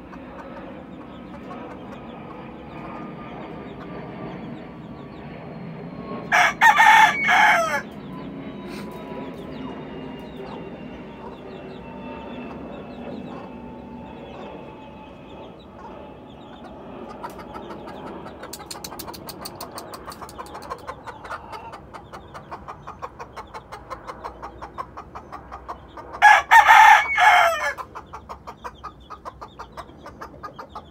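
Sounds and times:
faint chicken sounds: 0:06.2 - 0:30.9
rooster crowing: 0:06.3 - 0:08.0, 0:26.2 - 0:27.9.

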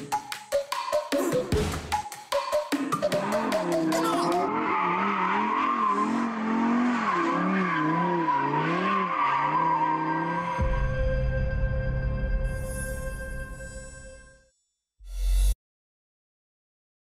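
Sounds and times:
car engine revving: 0:02.8 - 0:10.6.

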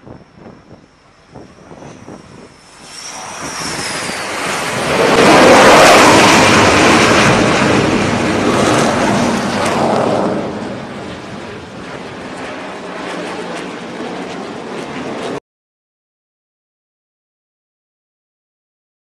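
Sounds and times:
thin high whine: 0:00.0 - 0:12.5
jet engines roaring: 0:00.0 - 0:15.4.

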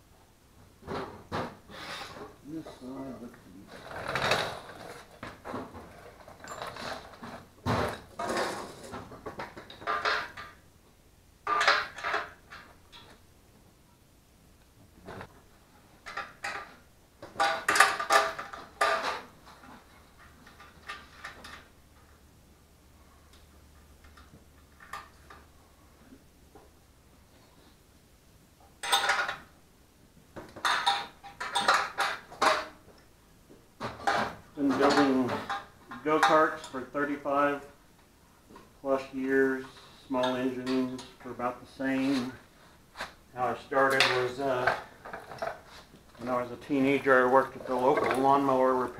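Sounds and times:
metal parts and tools clattering: 0:03.7 - 0:10.6, 0:11.4 - 0:13.2, 0:16.0 - 0:21.7, 0:28.8 - 0:29.5, 0:30.6 - 0:32.8, 0:33.8 - 0:36.8, 0:43.8 - 0:45.7
metal tools clinking and clattering: 0:05.9 - 0:07.4, 0:17.4 - 0:19.8, 0:28.8 - 0:29.4, 0:30.6 - 0:32.7.

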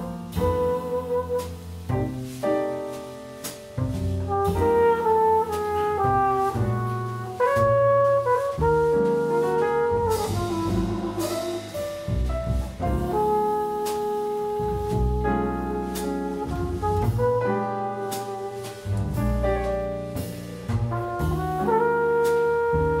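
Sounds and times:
flugelhorn melody: 0:00.0 - 0:02.4, 0:04.2 - 0:23.0
double bass: 0:00.0 - 0:23.0
piano: 0:00.0 - 0:23.0.

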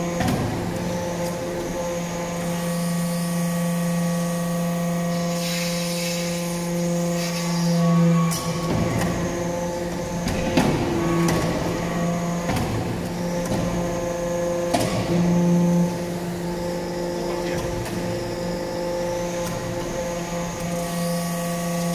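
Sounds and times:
hydraulic pump humming: 0:00.0 - 0:21.9
hiss: 0:05.1 - 0:07.8.

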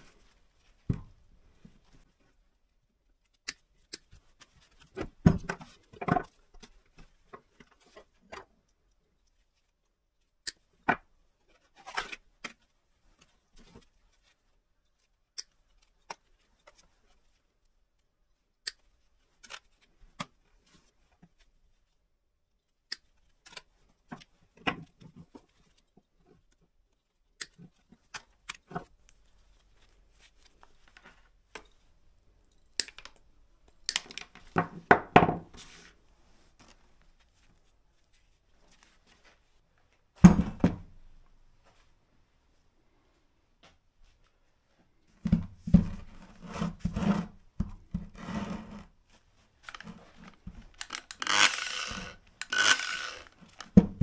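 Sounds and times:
clatter of handled parts: 0:49.6 - 0:54.0
side cutters snipping wires: 0:50.8 - 0:53.7.

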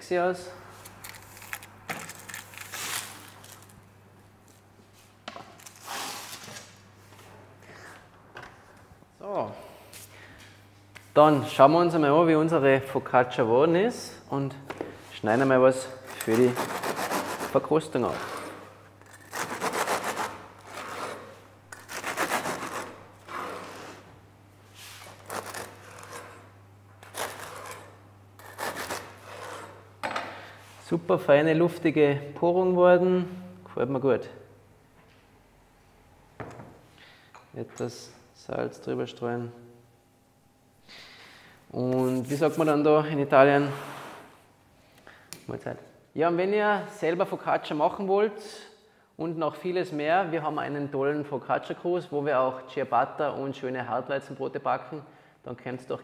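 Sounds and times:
baking paper rustling and crinkling: 0:00.8 - 0:03.8
bread knife sawing through crust: 0:16.2 - 0:24.0, 0:25.0 - 0:29.8.

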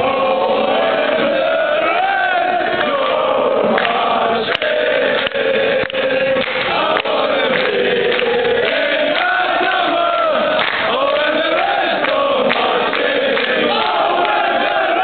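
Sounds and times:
crowd chanting: 0:00.0 - 0:15.0.

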